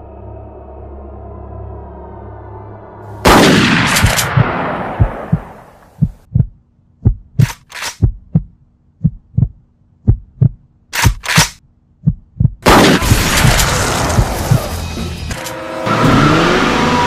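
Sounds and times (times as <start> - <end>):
heartbeat thumps: 4.3 - 10.7, 12.0 - 12.7
rushing noise: 13.0 - 17.0.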